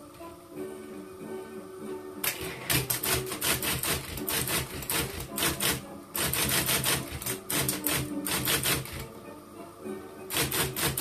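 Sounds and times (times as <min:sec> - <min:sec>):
electric typewriter typing: 0:02.2 - 0:09.1, 0:10.3 - 0:11.0.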